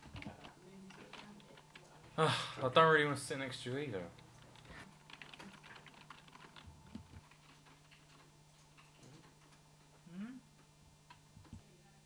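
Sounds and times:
keyboard typing: 0:00.0 - 0:02.0, 0:04.2 - 0:09.6.

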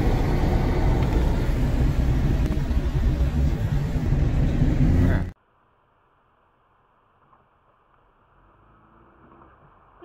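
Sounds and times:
car driving on wet road: 0:00.0 - 0:05.4, 0:07.6 - 0:10.0.

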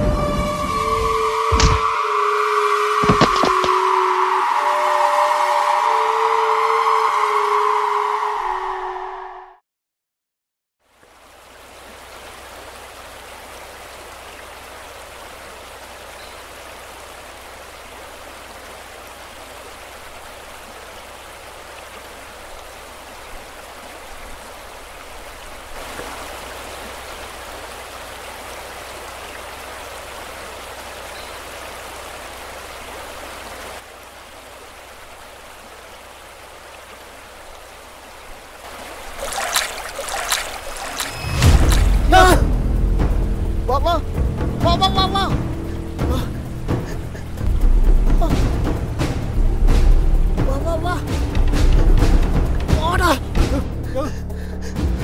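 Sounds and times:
river water rushing over rocks: 0:11.0 - 0:42.4.

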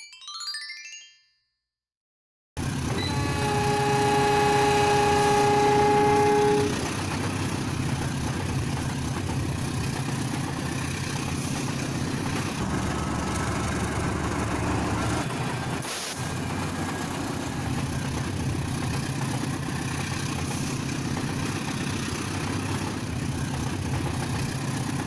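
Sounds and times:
toy train motor rumble: 0:02.6 - 0:25.0
toy train electronic horn: 0:02.7 - 0:07.2.

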